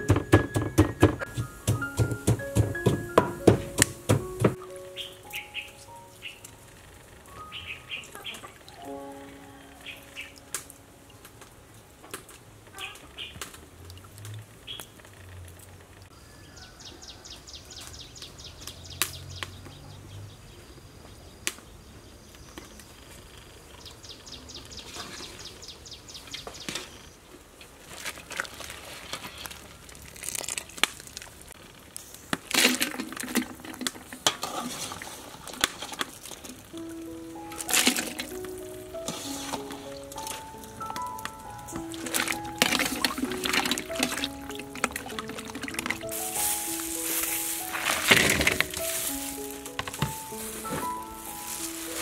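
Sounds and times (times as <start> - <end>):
pots and utensils clattering: 0.0 - 4.6, 32.5 - 36.7, 37.5 - 52.0.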